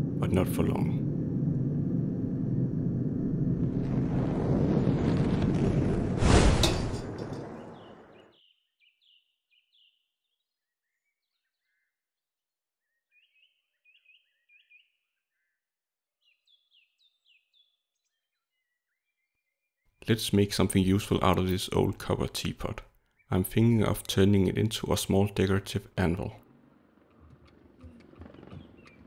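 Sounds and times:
rushing roar through air: 0.0 - 8.2
sharp crack: 3.9 - 8.2
faint songbird chirps: 7.6 - 20.4.

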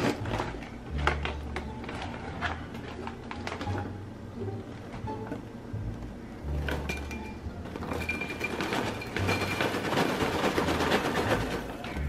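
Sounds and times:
popcorn pouring into glass bowl: 7.7 - 12.0.

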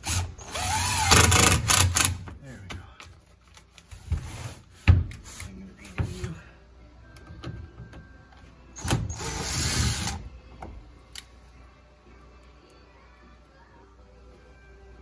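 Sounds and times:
drill driving screws: 0.0 - 2.2, 8.8 - 10.2.

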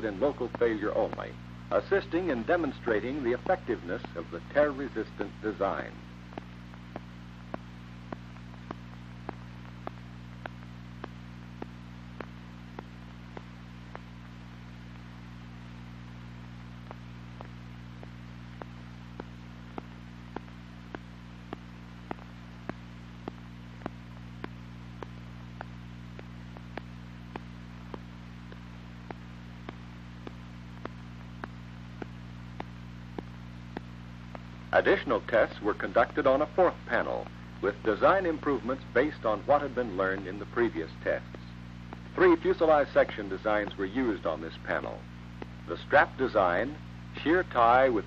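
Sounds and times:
electrical hum with hiss: 0.0 - 48.0
faint sharp clicks: 2.0 - 36.2.

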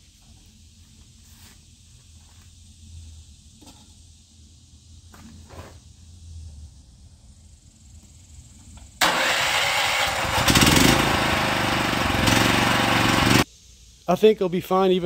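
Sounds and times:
generator engine running: 9.0 - 13.4.

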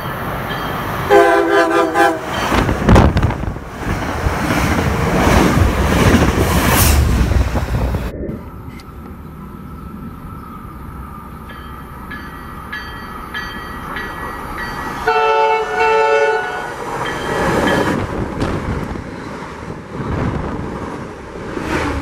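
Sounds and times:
train bell dinging: 0.0 - 1.6, 2.2 - 2.8, 11.4 - 18.0
train wheels on rails: 0.0 - 9.2, 11.3 - 22.0
train horn blasts: 1.1 - 2.4, 15.0 - 16.8.

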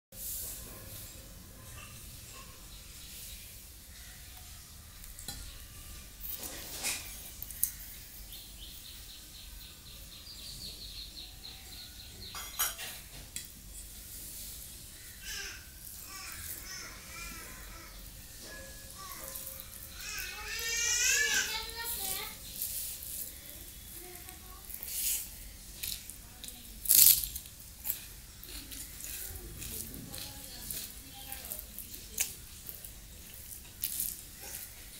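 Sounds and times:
metal tableware clinking: 12.3 - 13.5, 18.3 - 20.0
man chewing food: 26.8 - 34.9.

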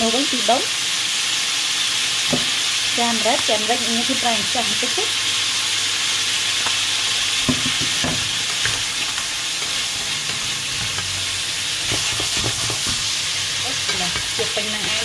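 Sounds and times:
meat sizzling in a frying pan: 0.0 - 15.0
spatula knocking on a pan: 7.4 - 8.8, 11.8 - 13.1
wooden spatula scraping a pan: 7.5 - 15.0.

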